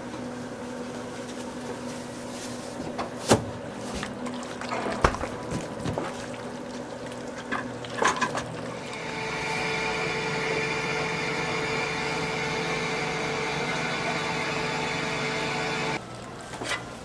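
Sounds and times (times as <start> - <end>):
kitchen hum: 0.0 - 17.0.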